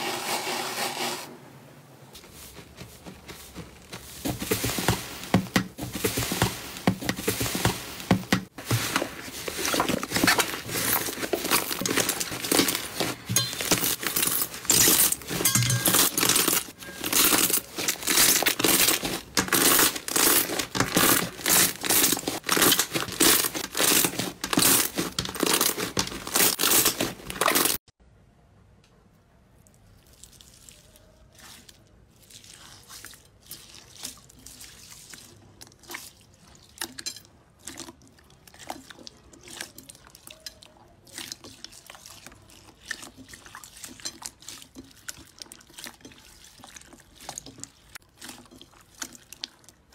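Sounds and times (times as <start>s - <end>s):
hands kneading slime: 2.1s - 27.8s, 30.0s - 36.8s, 37.6s - 49.9s
air popping and crackling in slime: 2.2s - 27.8s
soft clicks and squishes: 28.8s - 49.9s.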